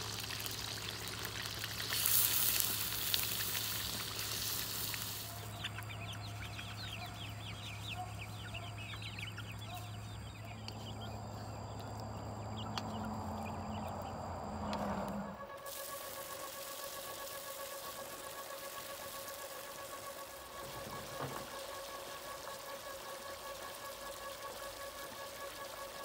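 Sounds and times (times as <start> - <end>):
chicken sizzling in a wok: 0.0 - 6.9, 15.5 - 26.0
chickens clucking: 1.3 - 22.6.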